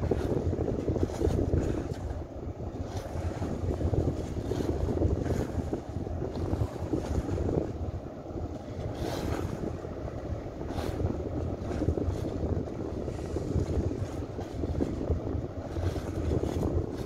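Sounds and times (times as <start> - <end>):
boat engine rumble: 0.0 - 17.0
water rushing past hull: 0.0 - 17.0
wind buffeting microphone: 0.0 - 17.0.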